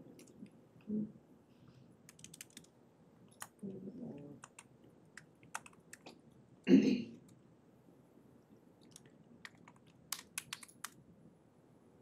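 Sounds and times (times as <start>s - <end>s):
faint keyboard keystrokes: 2.1s - 2.7s, 8.8s - 11.0s.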